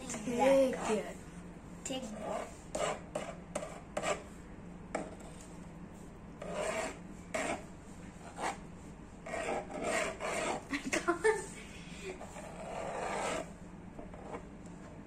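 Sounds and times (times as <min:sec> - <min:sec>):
palette knife scraping paint: 0:02.1 - 0:04.3, 0:06.4 - 0:08.6, 0:09.2 - 0:10.7, 0:12.2 - 0:14.5.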